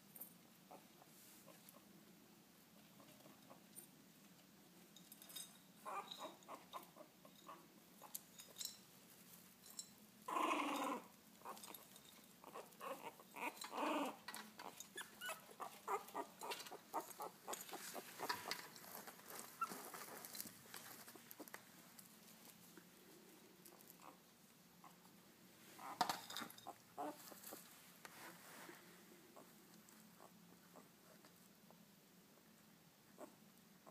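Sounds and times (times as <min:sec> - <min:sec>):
puppies whimpering and crying: 0:12.4 - 0:18.5.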